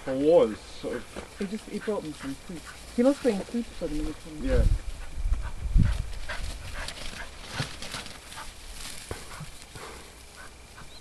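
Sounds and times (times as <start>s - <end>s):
rustling through long grass: 0.0s - 11.0s
dog sniffing: 1.2s - 3.6s, 4.9s - 11.0s
wind thump on microphone: 4.4s - 6.9s.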